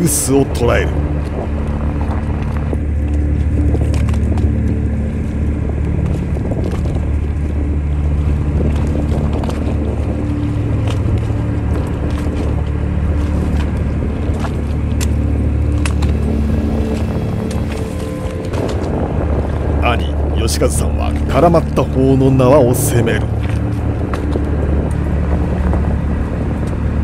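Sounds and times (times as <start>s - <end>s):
boat engine humming: 0.0s - 27.0s.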